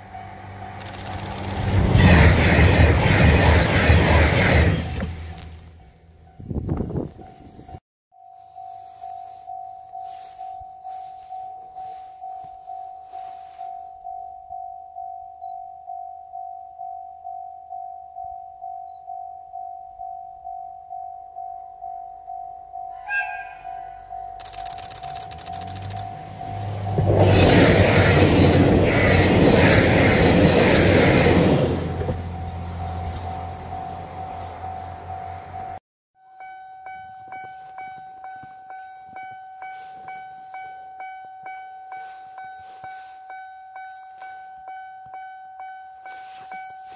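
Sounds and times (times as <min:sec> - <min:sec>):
level crossing warning bell ringing: 0:00.0 - 0:00.8, 0:08.2 - 0:24.5, 0:25.9 - 0:46.9
train passing with rushing rumble: 0:00.0 - 0:07.8, 0:22.9 - 0:35.8, 0:36.9 - 0:46.9.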